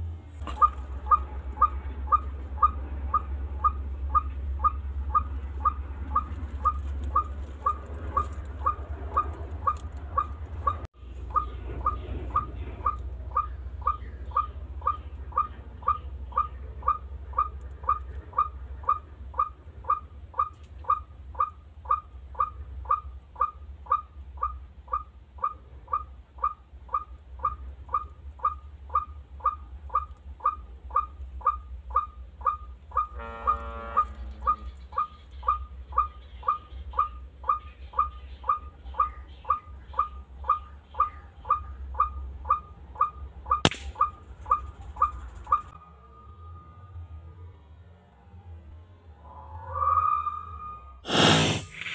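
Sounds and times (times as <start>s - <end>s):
low rumble: 0.0s - 20.3s
fuller buzzy bird call: 0.4s - 45.7s, 49.7s - 51.9s.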